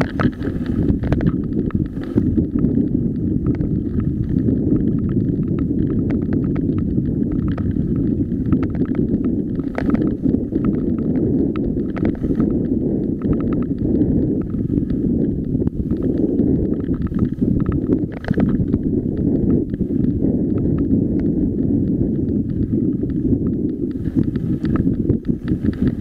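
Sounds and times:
tyres rumbling on gravel: 0.0 - 14.7
stones and bike parts rattling: 0.0 - 26.0
wind on microphone: 0.0 - 26.0.

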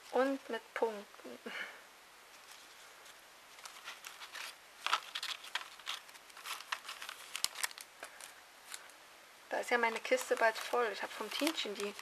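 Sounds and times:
paper rustling and crinkling: 2.3 - 9.0, 9.7 - 12.0.

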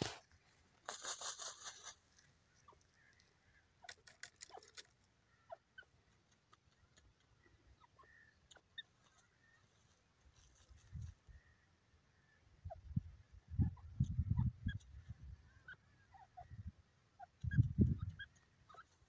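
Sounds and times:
bird rustling and scratching in soil: 0.0 - 5.2, 8.5 - 11.2.

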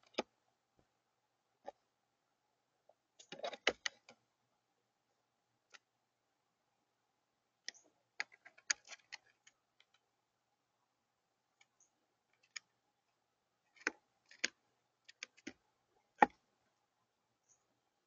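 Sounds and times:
beak pecking and tapping: 0.0 - 0.3, 7.6 - 10.0, 11.6 - 12.8, 13.7 - 16.4.

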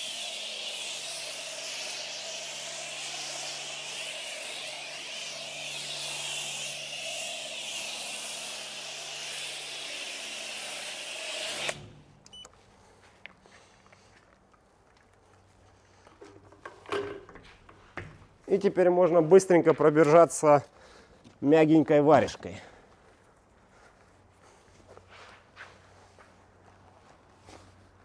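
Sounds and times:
pressure wand spraying hiss: 0.0 - 11.9.

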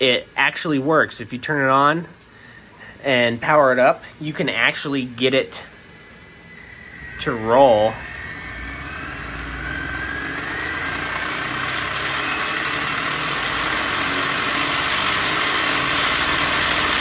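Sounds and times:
electric motor whine: 5.2 - 17.0.

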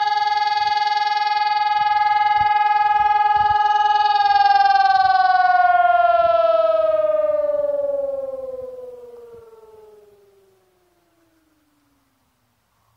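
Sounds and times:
siren winding down: 0.0 - 12.2.

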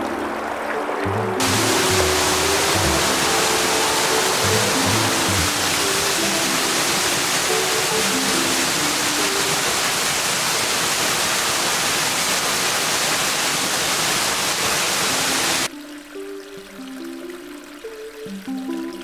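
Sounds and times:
soft melodic background music: 0.0 - 9.6, 15.7 - 19.0
waterfall rushing onto rock: 0.0 - 15.7.

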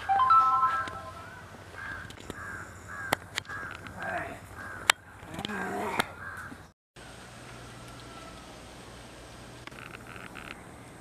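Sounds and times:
crows cawing: 1.2 - 5.3, 6.0 - 6.6.

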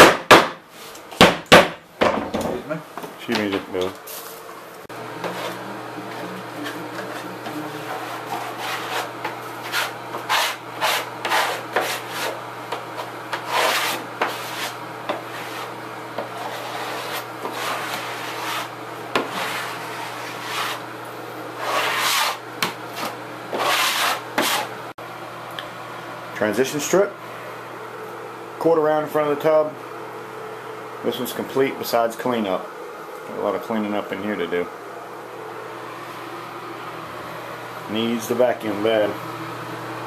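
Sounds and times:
steady low hum: 0.0 - 40.0
putty knife scraping floor: 5.2 - 20.9, 21.6 - 24.7.

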